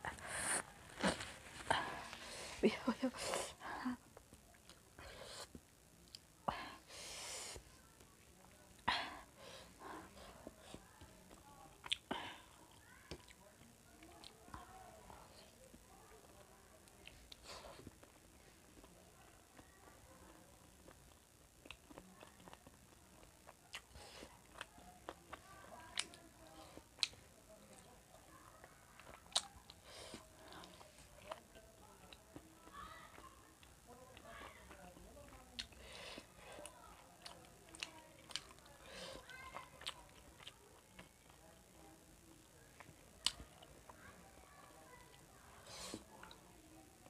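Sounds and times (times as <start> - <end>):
sniffing: 0.0 - 3.6.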